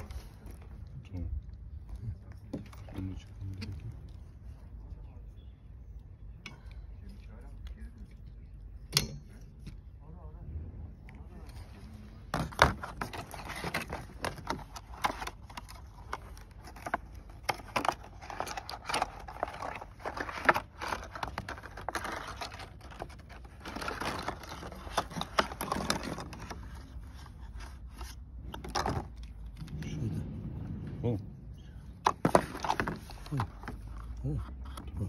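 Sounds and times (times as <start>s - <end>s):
packaging scraping and crinkling: 11.3s - 30.0s, 32.0s - 35.0s.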